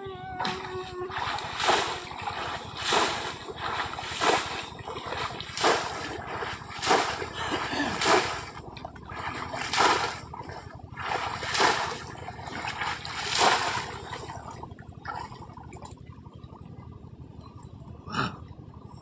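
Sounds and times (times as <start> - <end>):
trap splashing into shallow water: 0.4 - 15.4.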